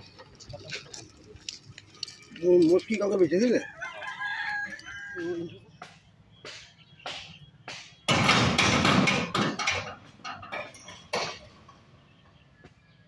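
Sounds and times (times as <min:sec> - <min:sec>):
light metallic clanks: 0:06.5 - 0:11.8
barriers clattering down: 0:08.2 - 0:11.8.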